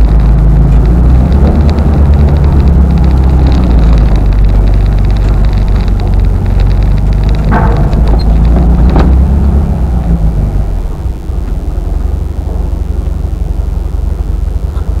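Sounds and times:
car engine rumbling: 0:00.0 - 0:15.0
clunk: 0:01.4 - 0:09.6.

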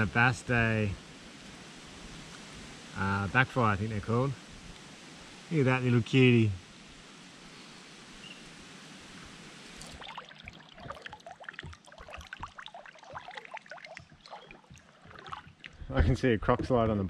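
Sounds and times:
steady hiss: 0:00.0 - 0:10.0
water sloshing and splashing: 0:09.7 - 0:16.0.

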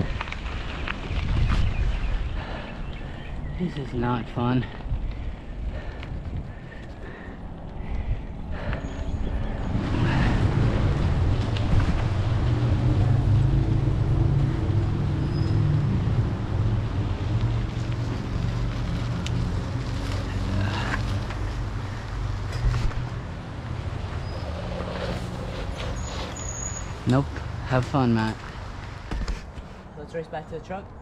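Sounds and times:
wind buffeting microphone: 0:00.0 - 0:15.0
bike tyres rolling on dirt: 0:00.0 - 0:29.8.

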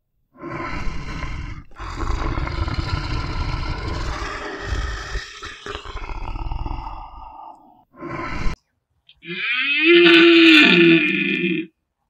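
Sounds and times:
lion growling: 0:00.5 - 0:07.7.

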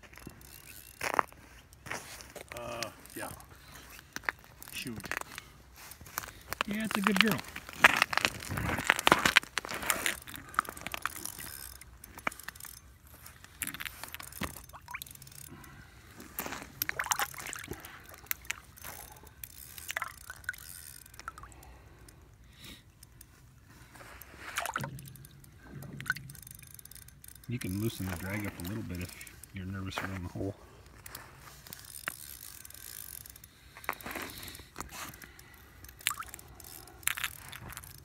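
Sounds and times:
ice clicking and knocking: 0:06.1 - 0:12.6, 0:16.3 - 0:18.9
water splashing and sloshing: 0:07.5 - 0:22.0, 0:22.9 - 0:27.6, 0:35.1 - 0:38.0.

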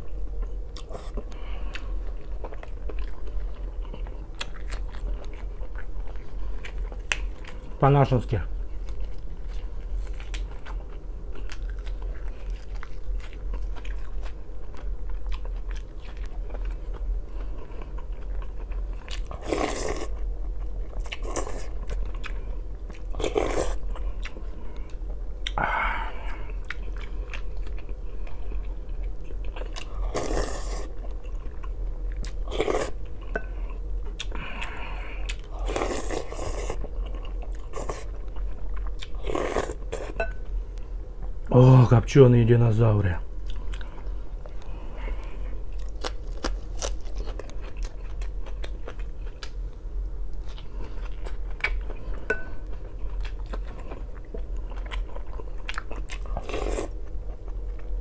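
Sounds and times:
chewing with wet mouth clicks: 0:00.4 - 0:07.6, 0:08.8 - 0:25.6, 0:26.6 - 0:29.9, 0:36.6 - 0:40.4, 0:43.4 - 0:44.7, 0:45.7 - 0:49.6, 0:50.4 - 0:57.9.

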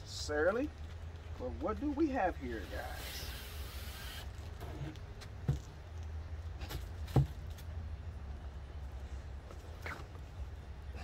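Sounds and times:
dull knocks of cardboard tube: 0:06.6 - 0:07.4.

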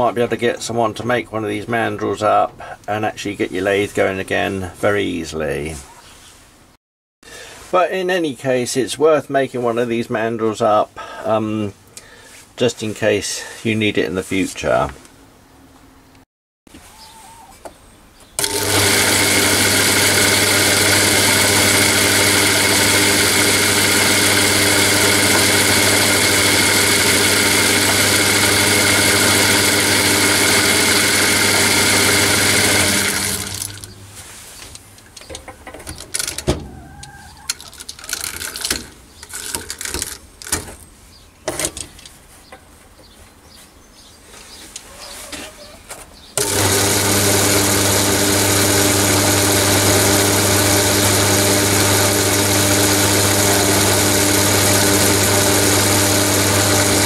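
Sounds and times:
lathe motor humming: 0:18.4 - 0:34.1, 0:46.4 - 0:57.0.

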